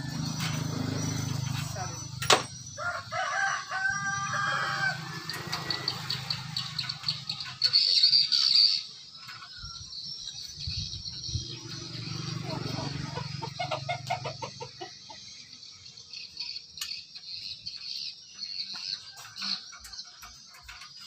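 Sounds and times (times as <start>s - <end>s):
rooster crowing: 2.7s - 6.0s.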